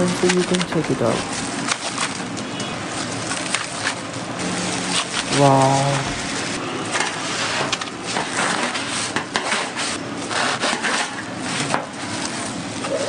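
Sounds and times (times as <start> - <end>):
knife sawing through crispy crust: 7.1 - 12.5.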